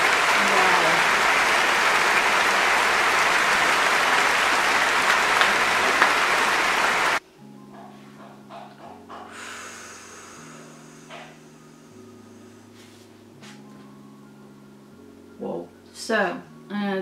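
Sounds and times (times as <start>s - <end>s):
concert audience applauding: 0.0s - 7.2s
soft background music of chords: 7.2s - 17.0s.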